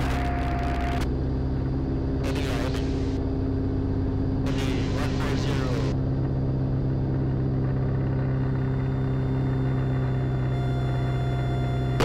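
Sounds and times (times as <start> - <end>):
light aircraft engine droning: 0.0 - 12.0.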